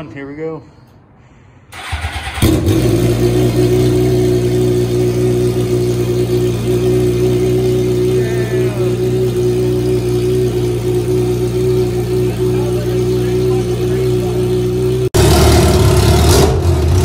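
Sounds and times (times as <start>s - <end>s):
electric starter cranking: 1.8s - 2.8s
motorcycle engine idling loudly: 2.4s - 16.2s.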